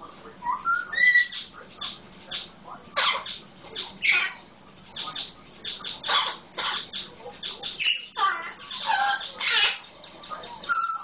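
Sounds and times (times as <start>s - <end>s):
parrot squawking and chattering: 0.4s - 11.0s.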